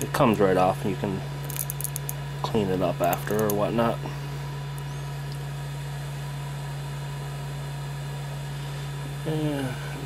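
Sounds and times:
man talking: 0.0 - 1.3, 2.4 - 4.1
printer humming with faint hiss: 0.0 - 10.0.

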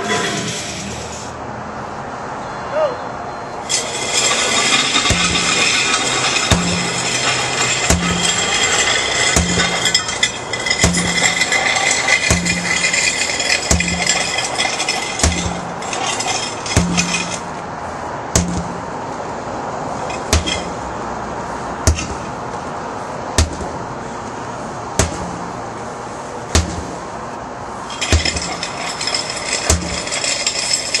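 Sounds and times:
sledgehammer striking tire: 3.7 - 17.7, 18.3 - 19.0, 20.0 - 20.9, 21.8 - 22.4, 23.3 - 23.9, 24.9 - 25.6, 26.5 - 27.1, 27.8 - 31.0.

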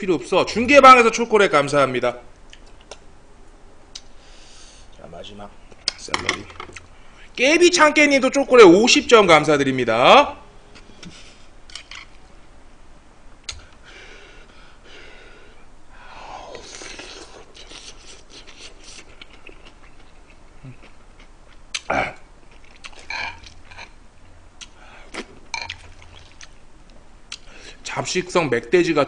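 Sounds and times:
breathing: 4.2 - 5.0, 6.9 - 7.4, 13.6 - 16.6, 24.8 - 25.1, 27.5 - 27.8
chewing: 16.5 - 21.9, 22.5 - 24.0, 24.6 - 26.6.

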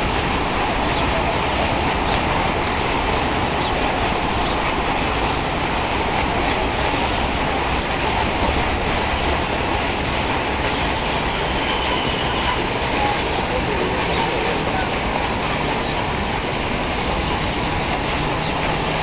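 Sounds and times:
fountain water falling on lake: 0.0 - 19.0.

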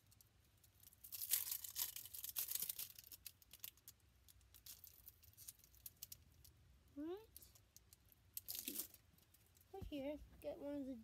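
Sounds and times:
plastic packaging crinkling: 0.8 - 6.5, 8.4 - 9.0.

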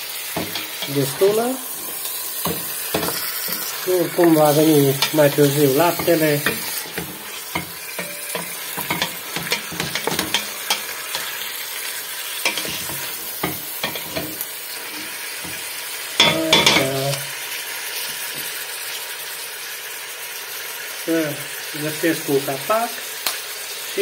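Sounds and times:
meat sizzling: 0.0 - 24.0
spoon scraping metal pot: 0.4 - 11.5, 12.4 - 15.6.

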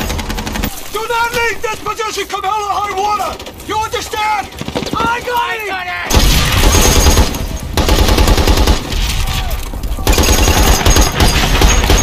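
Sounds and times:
machine gun firing bursts: 0.0 - 0.7, 6.1 - 9.0, 10.0 - 12.0.

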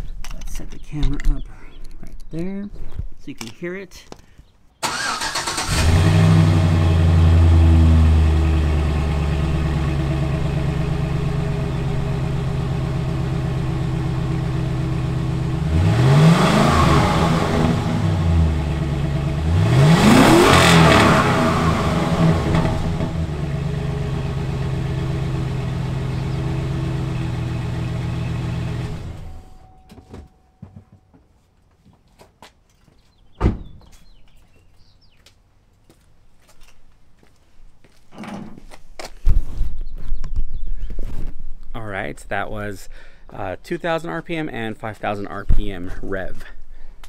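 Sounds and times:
truck engine idling and revving: 4.8 - 29.8.

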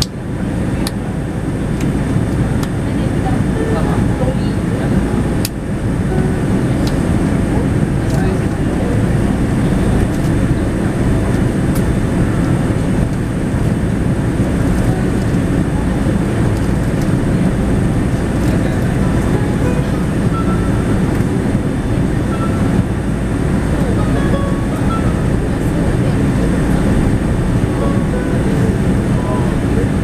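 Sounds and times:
airliner cabin airflow and engine rush: 0.0 - 30.0.

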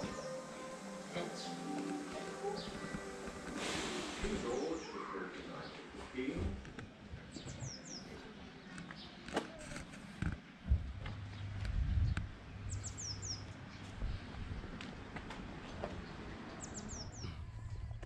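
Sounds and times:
low outdoor rumble: 4.2 - 18.0.

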